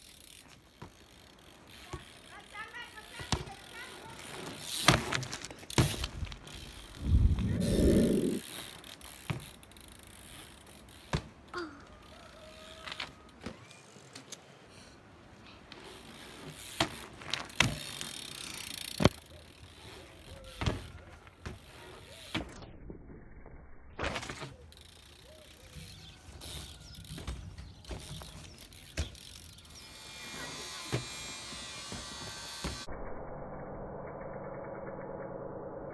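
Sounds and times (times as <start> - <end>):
bike rolling on asphalt: 0.0 - 32.9
bike wheels knocking down: 4.5 - 6.5
bike knocks and clicks: 4.6 - 6.4, 9.1 - 10.1, 26.6 - 29.7.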